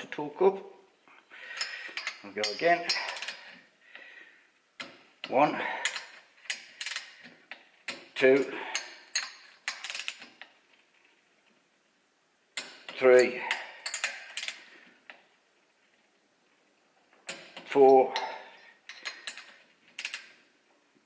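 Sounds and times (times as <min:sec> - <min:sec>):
ratchet and socket clicking: 0:05.8 - 0:08.1, 0:08.7 - 0:10.5, 0:18.9 - 0:20.4.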